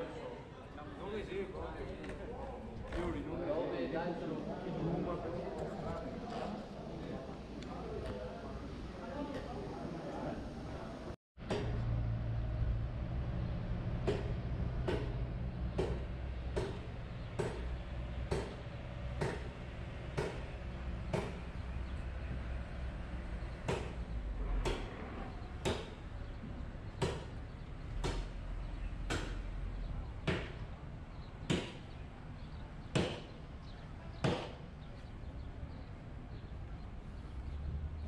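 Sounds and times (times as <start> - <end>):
low steady rumble: 11.4 - 24.7.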